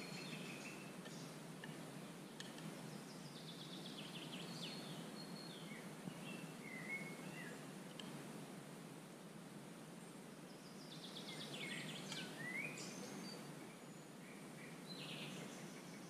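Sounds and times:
songbird chirping and whistling: 0.0s - 1.4s, 3.0s - 7.6s, 10.7s - 16.0s
low background hiss: 0.0s - 16.0s.

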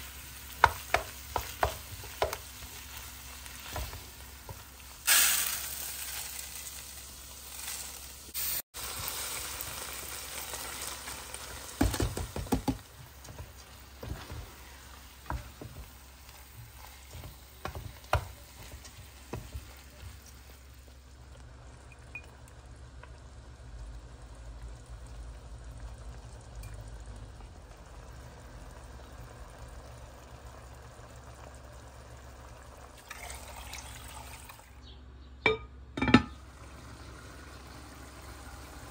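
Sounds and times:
food sizzling in frying pan: 0.0s - 34.6s, 36.3s - 38.9s
wooden spoon knocking and scraping pan: 0.5s - 3.0s, 11.8s - 20.6s
water poured into pan: 32.9s - 34.7s.

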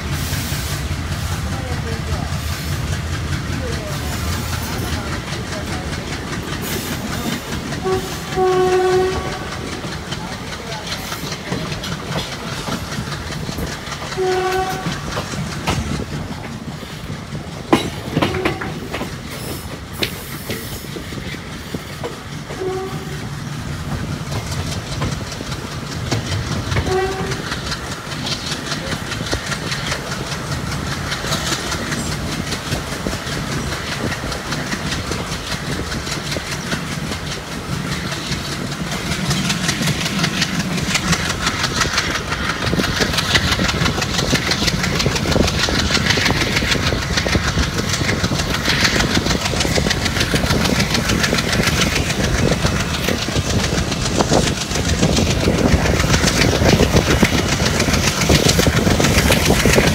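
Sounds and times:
diesel locomotive chugging: 0.0s - 59.9s
train wheels clicking on rails: 0.0s - 59.9s
train horn toots: 7.8s - 9.8s, 14.1s - 15.2s, 18.2s - 18.9s, 22.5s - 23.3s, 26.7s - 27.6s.

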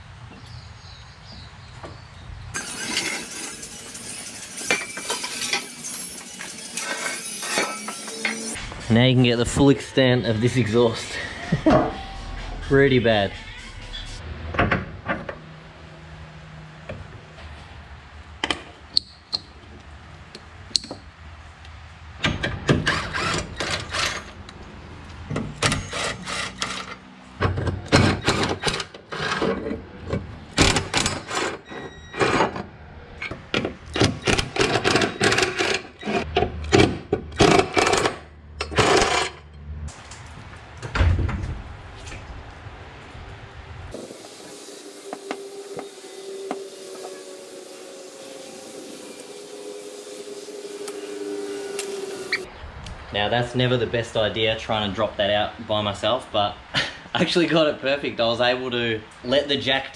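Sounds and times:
tools and metal parts clattering: 2.6s - 8.6s, 25.4s - 32.6s.

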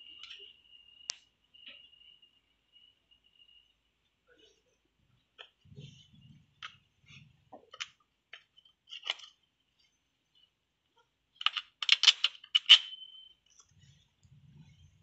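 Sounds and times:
metal parts clicking and scraping: 8.6s - 9.4s, 11.4s - 14.6s
metal parts clinking and clattering: 8.9s - 9.4s, 11.4s - 13.2s.

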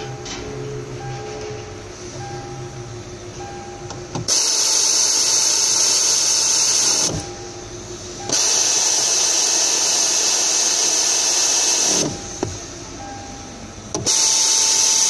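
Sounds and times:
power tool whirring: 4.3s - 7.2s, 8.3s - 12.2s, 14.0s - 15.0s.

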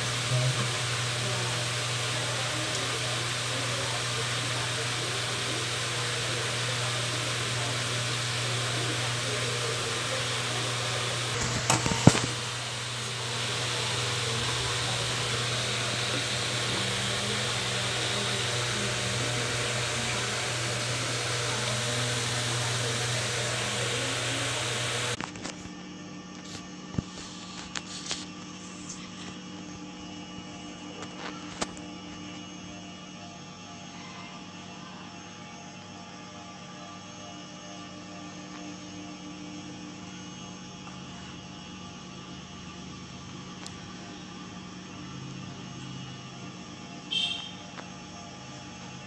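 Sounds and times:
hot oil sizzling: 0.0s - 25.2s.

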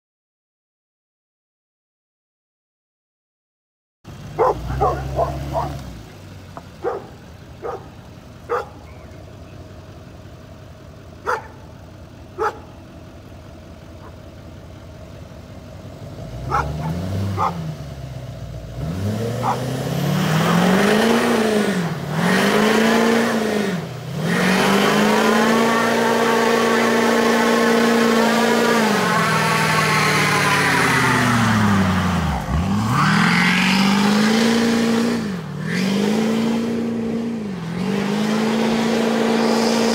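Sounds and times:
truck engine revving: 4.2s - 10.2s, 13.8s - 39.9s
dog barking: 4.4s - 5.8s, 6.8s - 8.9s, 11.2s - 11.6s, 12.4s - 12.7s, 14.0s - 14.2s, 16.5s - 17.6s, 19.4s - 19.7s.

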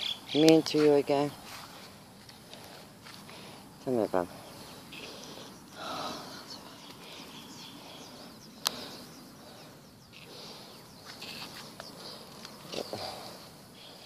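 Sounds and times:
faint bird chirps: 0.0s - 0.6s, 3.8s - 14.0s.

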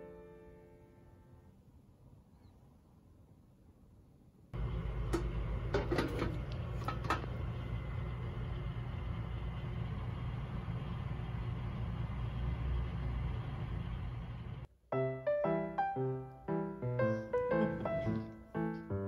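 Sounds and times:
low electrical hum: 0.0s - 14.9s
metal lid clattering: 5.2s - 7.3s.

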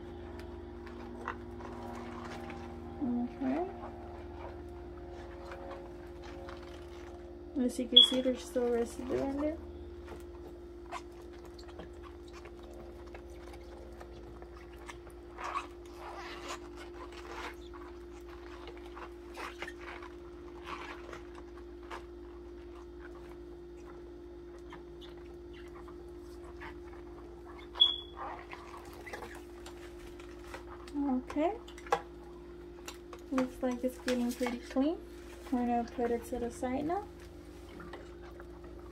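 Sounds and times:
steady low hum: 0.0s - 38.9s
short high squeak: 27.8s - 28.2s.

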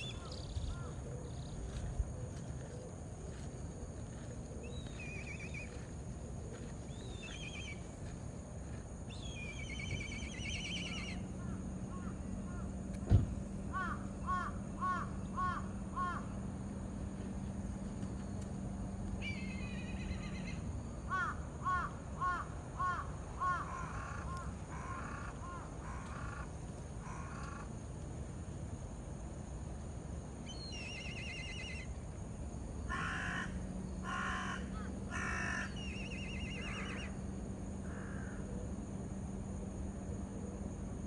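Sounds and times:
birds cawing: 0.0s - 1.4s, 9.3s - 12.8s, 13.7s - 16.4s, 19.2s - 27.7s, 32.9s - 37.2s, 37.8s - 38.5s
birds trilling: 0.0s - 2.9s, 4.5s - 5.9s, 6.5s - 8.0s, 9.1s - 12.8s, 13.7s - 16.5s, 19.2s - 27.7s, 30.5s - 31.9s, 32.9s - 38.5s
faint low hum: 0.0s - 41.0s.

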